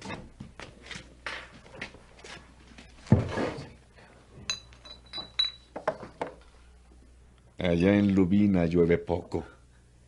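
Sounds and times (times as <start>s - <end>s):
glass beer bottles clinking: 4.4s - 6.2s.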